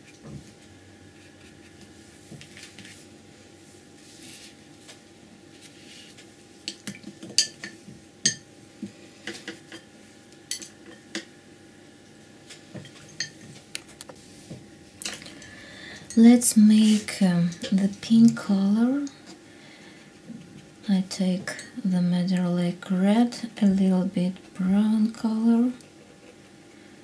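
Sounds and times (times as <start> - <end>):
soft handling sounds: 0.0 - 6.5.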